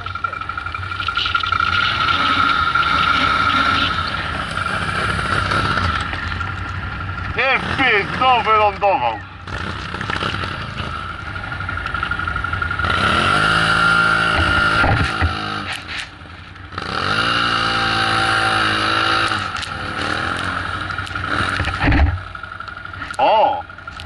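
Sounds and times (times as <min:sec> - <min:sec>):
quad engine revving hard: 0:01.6 - 0:06.1, 0:07.4 - 0:11.2, 0:12.8 - 0:15.9, 0:16.7 - 0:22.2.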